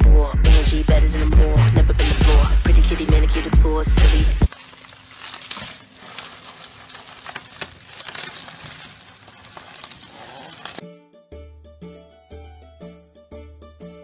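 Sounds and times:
keyboard tune with pulsing bass: 0.0 - 4.5, 10.8 - 14.0
plastic wrapping crinkling: 4.4 - 10.8.

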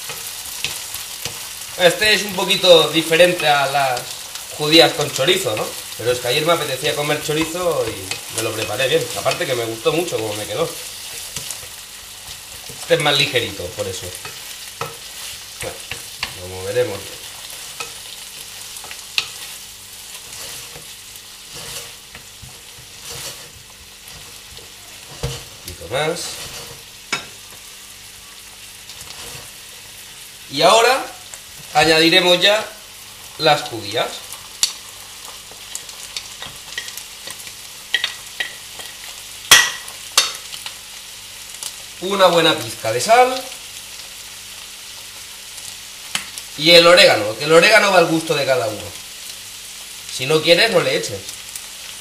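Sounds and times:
wooden spoon scraping a pan: 0.0 - 27.7, 28.9 - 30.0
food sizzling in a pan: 0.0 - 52.0
spoon scraping a plate: 21.5 - 25.5.

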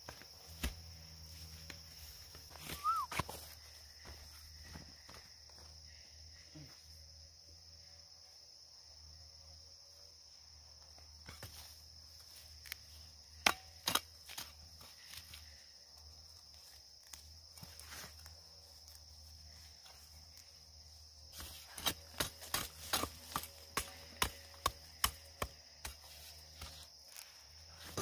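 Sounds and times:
hoe chopping into soil: 13.4 - 14.6, 21.3 - 26.8.

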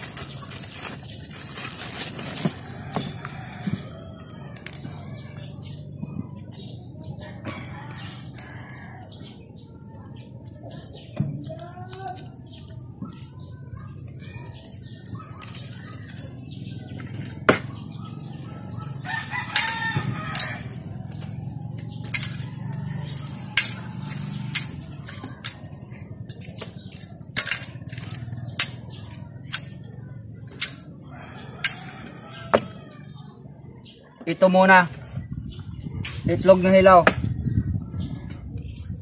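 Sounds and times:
rooster crowing: 19.0 - 20.8, 31.1 - 33.2
eggs clicking and cracking: 19.0 - 29.9.

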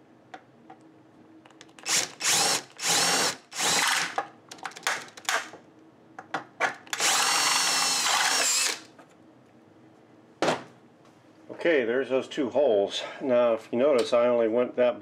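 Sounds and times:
drill clicks: 1.5 - 5.3, 6.9 - 8.9
cordless drill boring: 1.8 - 4.2, 7.0 - 8.9.

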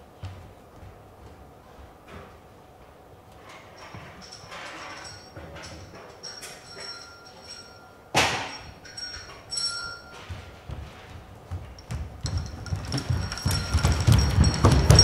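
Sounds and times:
footsteps on stage floor: 0.0 - 3.4, 9.8 - 15.0
sharp ringing knock: 8.1 - 9.1.

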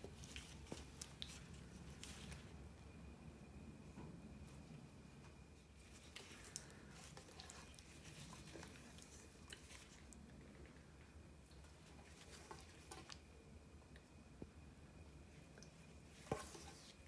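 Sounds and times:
wet squelching of marinated chicken: 5.8 - 10.2.

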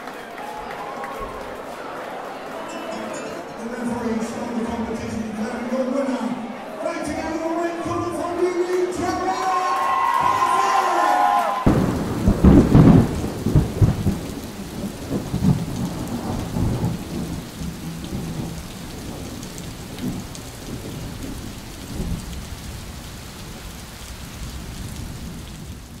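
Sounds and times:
rain falling: 0.0 - 26.0
thunder rumbling: 11.6 - 26.0.

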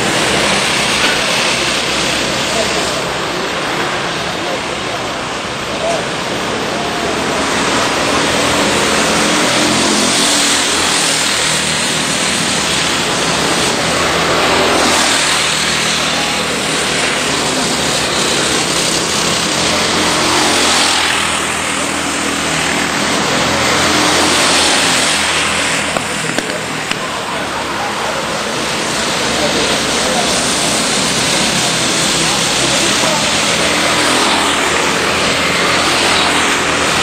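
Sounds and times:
go-kart engines passing: 0.0 - 37.0.

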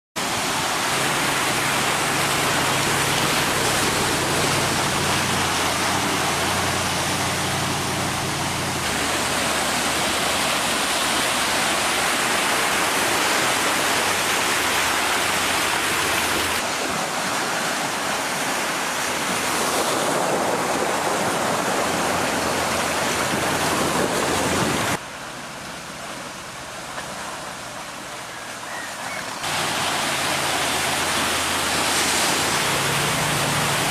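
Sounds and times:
low engine hum: 0.2 - 18.4, 29.2 - 33.9
water rushing and splashing: 0.2 - 33.9.

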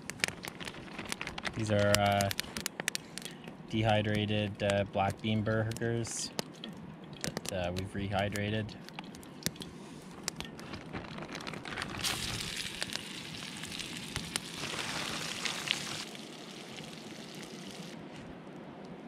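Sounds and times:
burgers sizzling in a frying pan: 12.0 - 18.0.

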